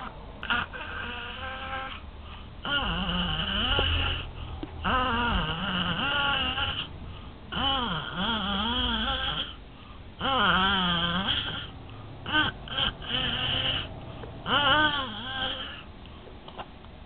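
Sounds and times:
baby vocalising: 0:00.4 - 0:02.0, 0:02.6 - 0:06.9, 0:07.5 - 0:09.6, 0:10.2 - 0:15.9.

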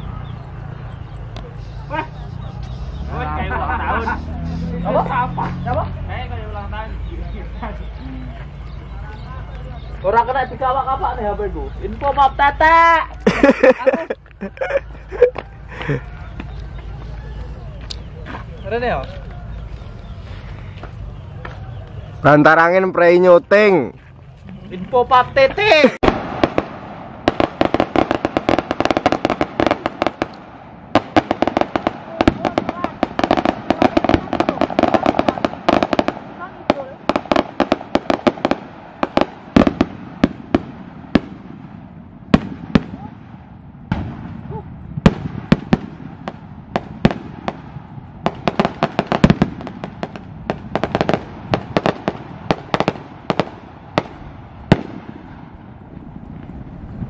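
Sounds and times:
firecrackers popping: 0:23.6 - 0:57.0.

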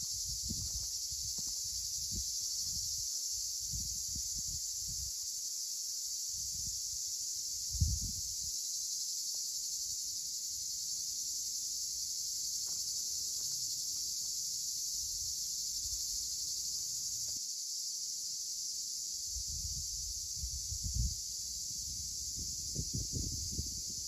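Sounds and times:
insects chorus: 0:00.0 - 0:24.0
wind buffeting microphone: 0:00.1 - 0:03.0, 0:07.7 - 0:08.3, 0:19.4 - 0:24.0.

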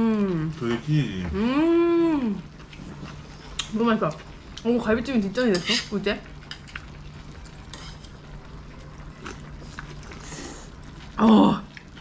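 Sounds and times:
soft chewing: 0:06.4 - 0:12.0.

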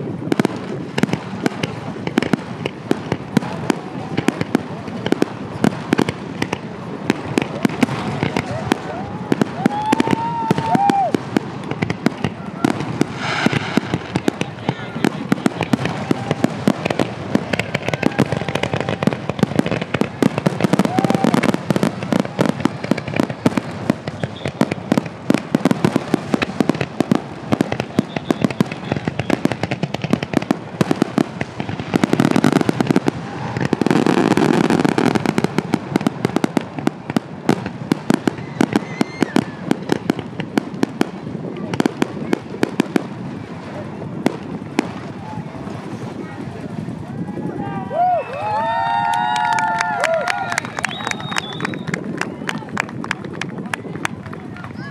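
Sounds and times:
fireworks bangs and crackles: 0:00.0 - 0:54.9.

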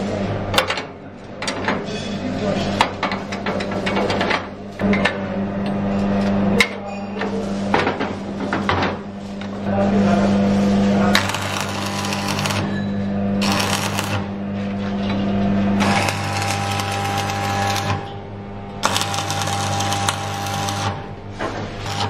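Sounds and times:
machine humming: 0:09.1 - 0:22.0.

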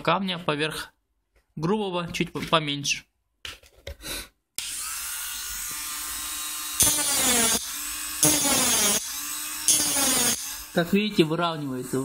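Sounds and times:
rotary engraver whining: 0:04.6 - 0:11.1.

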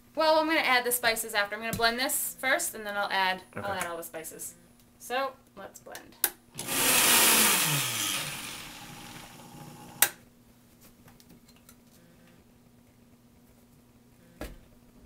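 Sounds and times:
blender motor running: 0:06.6 - 0:10.1.

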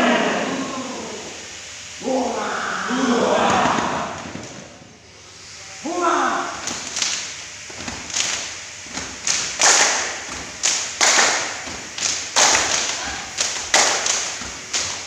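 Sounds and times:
boots stamping on concrete: 0:07.7 - 0:15.0.

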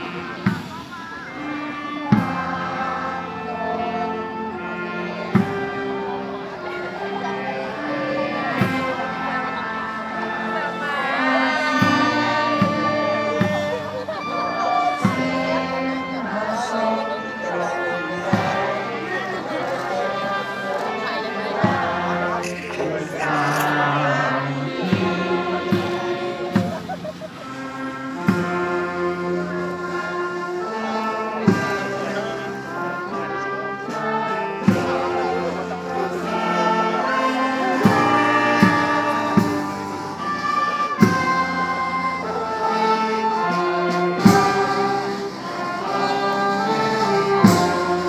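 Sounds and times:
drum strokes: 0:00.0 - 0:03.5, 0:17.6 - 0:30.3
brass band playing slow tune: 0:00.0 - 0:48.0.

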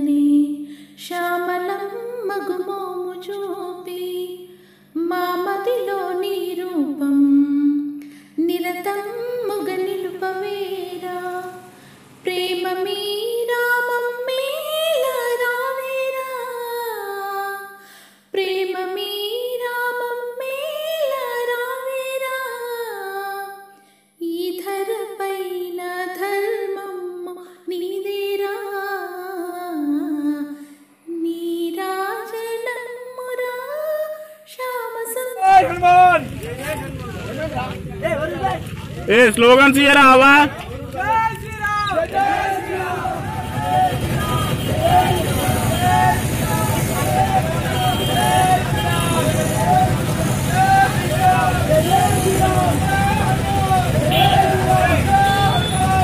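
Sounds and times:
woman singing devotional song: 0:00.0 - 0:35.4.

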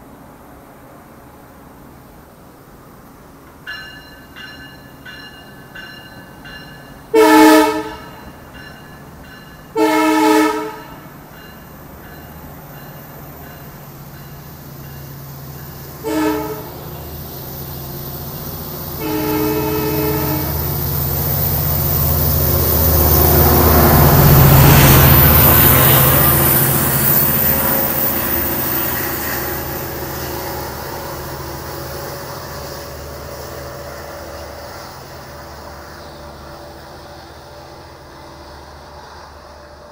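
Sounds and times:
diesel locomotive: 0:00.0 - 0:39.9
train coaches rumbling: 0:00.0 - 0:39.9
faint bell ringing: 0:03.7 - 0:07.1, 0:08.1 - 0:09.8, 0:10.8 - 0:16.0
train horn: 0:07.1 - 0:08.3, 0:09.7 - 0:11.1, 0:16.0 - 0:17.0, 0:19.0 - 0:20.8.

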